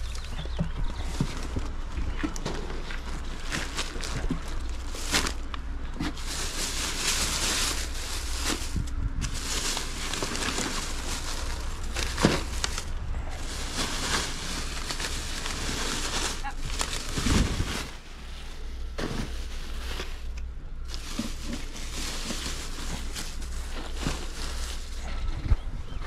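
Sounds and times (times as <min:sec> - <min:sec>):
rustling: 0:00.9 - 0:25.5
wind rumbling on microphone: 0:07.7 - 0:14.8, 0:24.8 - 0:26.0.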